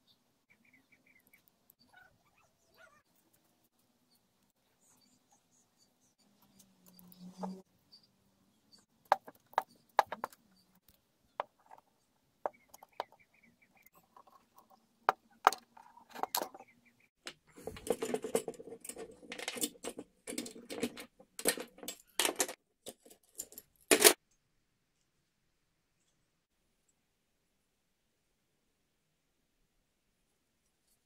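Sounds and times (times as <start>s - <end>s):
metal parts clicking and knocking: 13.9s - 16.6s, 17.2s - 24.2s.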